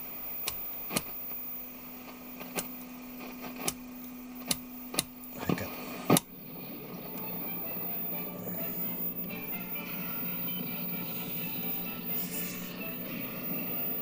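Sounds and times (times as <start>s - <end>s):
low steady hum: 0.0s - 14.0s
sharp clicks from tv chassis: 0.4s - 1.2s, 2.4s - 2.8s, 3.4s - 3.8s, 4.4s - 6.3s.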